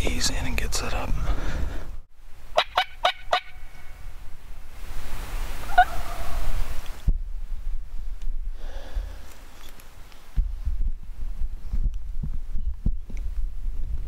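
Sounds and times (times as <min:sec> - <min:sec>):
turkey gobbling: 0:02.6 - 0:03.8, 0:05.7 - 0:06.5.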